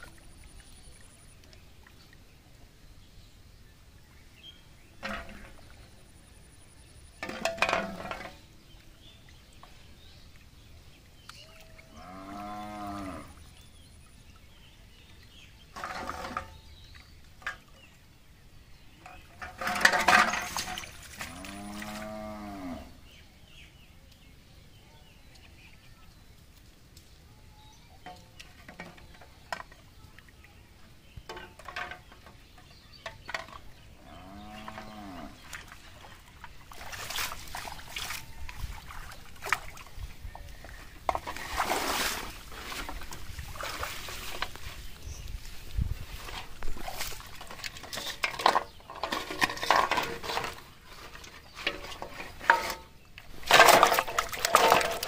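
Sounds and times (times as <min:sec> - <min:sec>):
cow mooing: 0:11.9 - 0:13.4, 0:21.2 - 0:22.9, 0:34.0 - 0:35.4.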